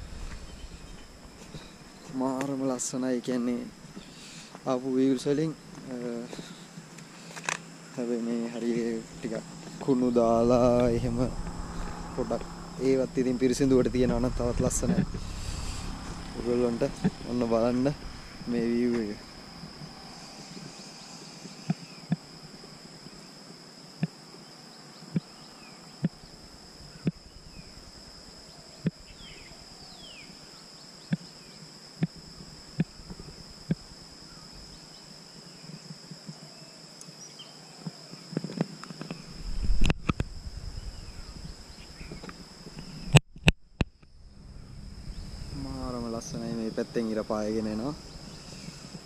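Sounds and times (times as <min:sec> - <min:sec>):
rumble with loud knock: 0:00.0 - 0:02.1, 0:09.0 - 0:20.2, 0:43.1 - 0:46.5
insects chirring: 0:00.0 - 0:49.0.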